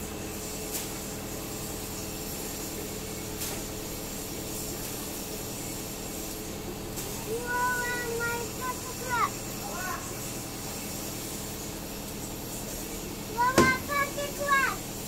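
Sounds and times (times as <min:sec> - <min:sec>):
truck engine humming: 0:03.2 - 0:11.4, 0:13.0 - 0:14.9.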